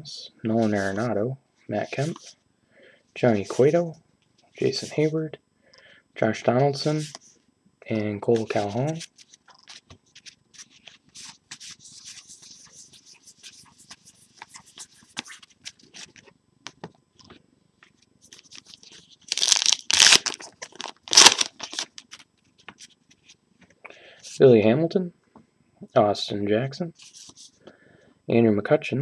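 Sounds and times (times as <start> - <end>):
card pack wrapper ripping: 18.3 - 22.2
trading cards rustling and clicking: 18.3 - 23.3.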